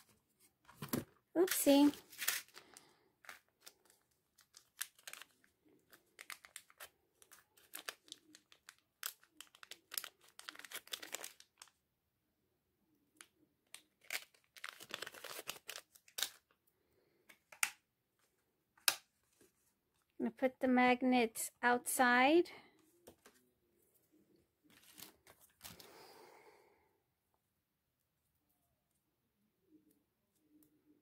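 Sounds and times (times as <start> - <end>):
plastic packaging crinkling: 0.7 - 11.8, 13.7 - 16.6.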